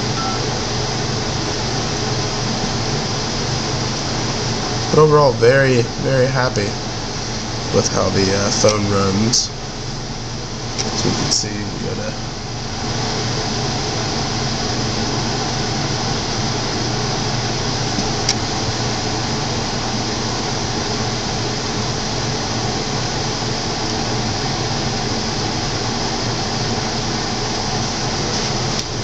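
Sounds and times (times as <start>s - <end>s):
room noise hum and hiss: 0.0s - 29.0s.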